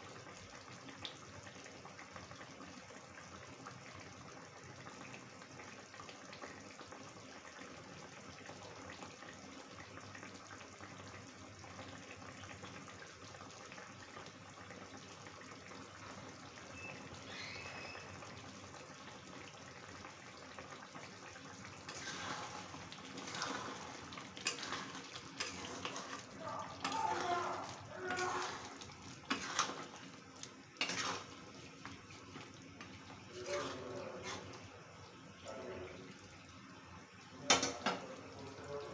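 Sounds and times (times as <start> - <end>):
curry bubbling in a pan: 0.0 - 38.9
metal ladle scraping a pan: 21.8 - 27.0, 28.1 - 30.0, 30.8 - 31.4, 33.3 - 34.6.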